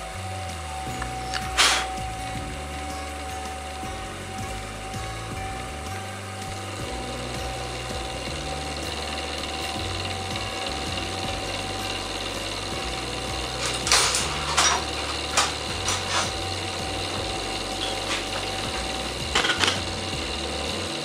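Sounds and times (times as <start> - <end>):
metal lathe humming: 0.0 - 21.0
sharp metallic clicks and knocks: 7.5 - 21.0.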